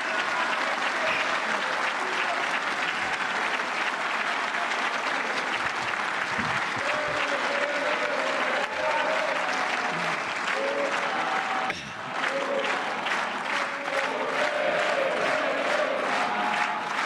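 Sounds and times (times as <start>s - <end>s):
audience applauding: 0.0s - 17.0s
voices over applause: 0.0s - 17.0s.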